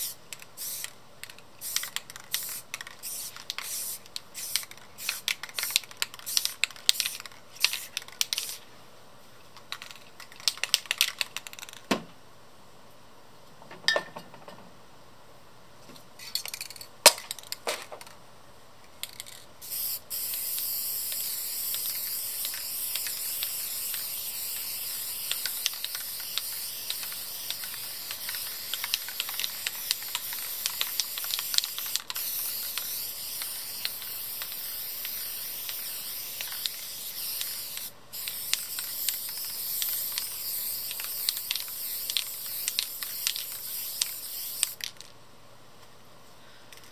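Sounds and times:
aerosol spray can hissing: 0.0s - 0.9s, 1.6s - 8.6s, 19.6s - 44.9s.

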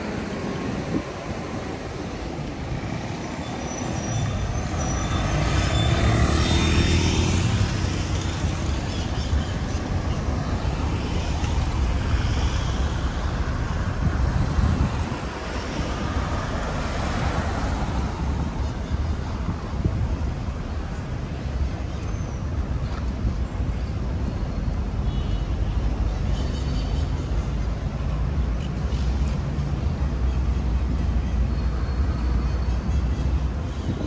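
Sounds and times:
cars driving past: 0.0s - 21.8s.

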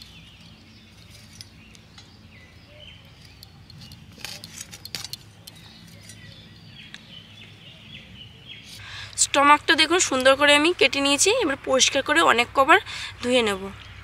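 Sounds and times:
birds chirping faintly: 0.0s - 14.0s.

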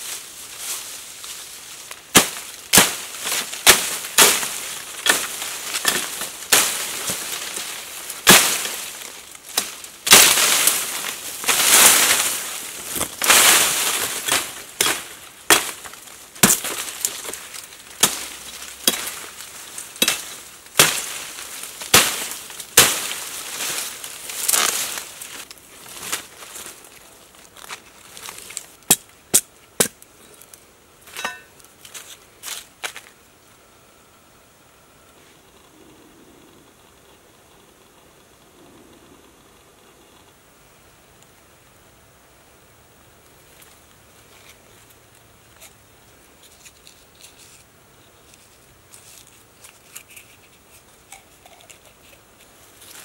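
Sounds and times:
soft crackling of wood shaving: 0.0s - 29.2s, 43.2s - 53.0s
low hiss: 0.0s - 53.0s
machete chopping branch: 2.1s - 17.4s, 18.0s - 19.4s, 20.0s - 25.0s
hands handling bamboo tube: 43.5s - 53.0s.

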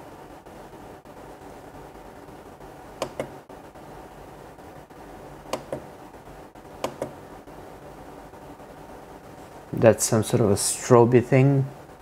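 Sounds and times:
push button double clicks: 3.0s - 3.3s.

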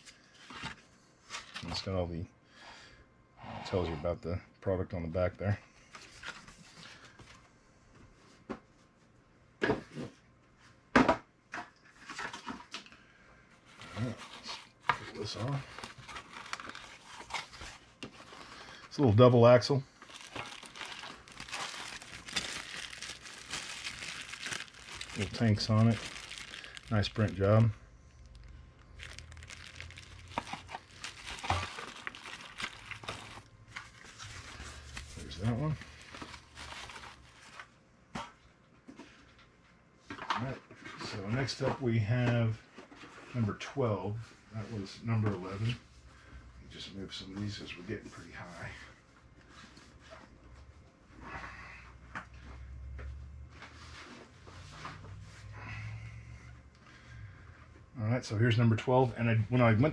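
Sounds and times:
faint paper rustle: 13.7s - 37.7s
plastic bag crinkling: 13.9s - 37.6s.

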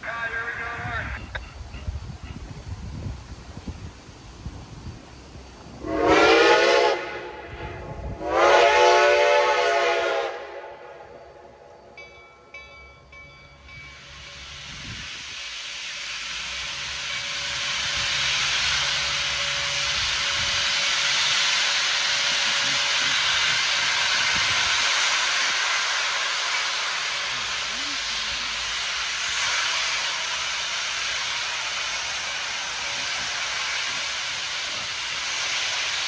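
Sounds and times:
escaping steam hissing: 0.0s - 12.0s, 13.5s - 36.0s
steam locomotive whistle blasts: 5.8s - 11.7s.

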